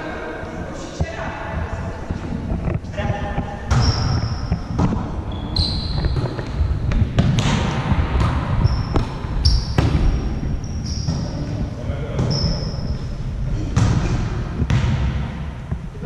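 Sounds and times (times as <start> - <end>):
sneaker squeaks on court floor: 3.7 - 6.6, 8.6 - 11.5, 12.2 - 13.0.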